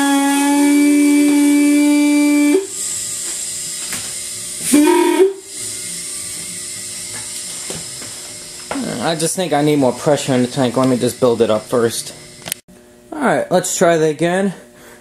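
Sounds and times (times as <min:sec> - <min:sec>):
locomotive air horn blast: 0:00.0 - 0:02.8, 0:04.6 - 0:05.6
air hissing: 0:00.0 - 0:12.6.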